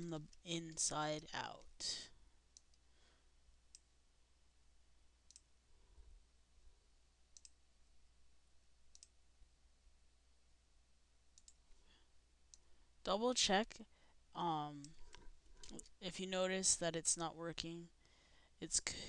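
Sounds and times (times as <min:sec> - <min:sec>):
low steady hum: 0:00.0 - 0:19.0
computer mouse clicks: 0:05.3 - 0:05.5, 0:07.3 - 0:07.6, 0:08.9 - 0:09.2, 0:11.4 - 0:11.8.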